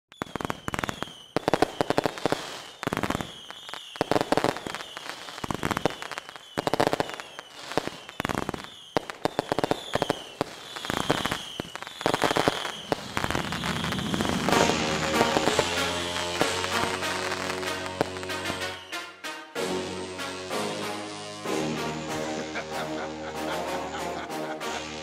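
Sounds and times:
falling whistles of fireworks: 0.1s - 19.5s
fireworks banging: 0.1s - 25.0s.

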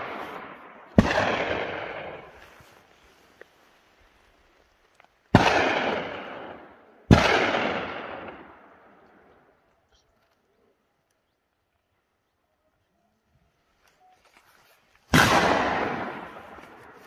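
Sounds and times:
gunshots with long echo: 0.0s - 2.9s, 5.3s - 9.5s, 15.1s - 17.0s.

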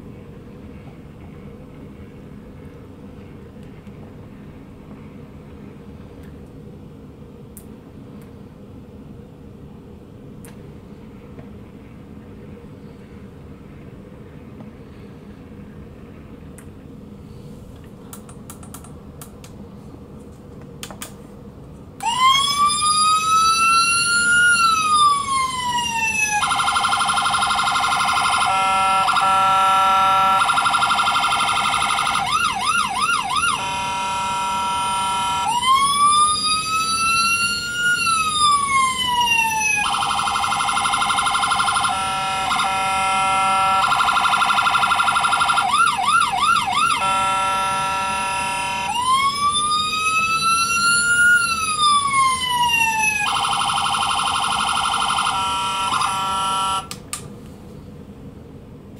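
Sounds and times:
electronic police siren: 22.0s - 57.0s.

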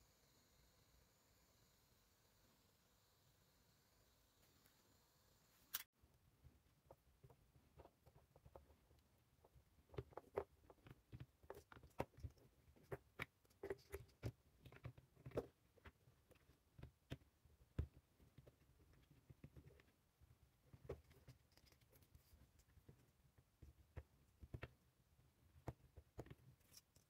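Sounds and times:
clicks and taps of plastic and wire: 20.7s - 24.8s, 25.5s - 27.0s.

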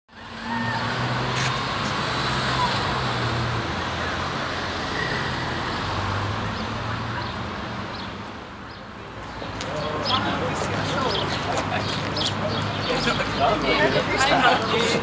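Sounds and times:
traffic passing: 0.1s - 15.0s.

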